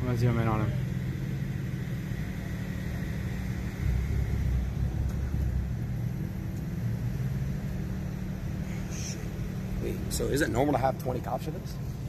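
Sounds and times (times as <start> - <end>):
rumble of road vehicles: 0.0 - 12.0.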